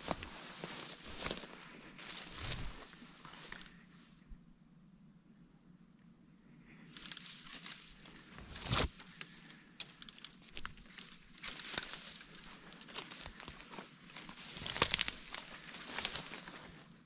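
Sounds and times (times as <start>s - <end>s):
footsteps in undergrowth: 0.0s - 4.0s, 6.9s - 17.0s
leaves and branches brushing: 0.0s - 4.2s, 6.9s - 17.0s
twigs snapping: 7.0s - 16.7s.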